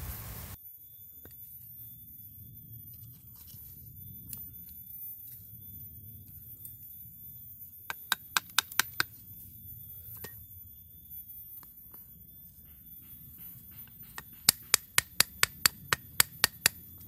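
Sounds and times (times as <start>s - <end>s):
chisel being struck: 13.7s - 16.8s.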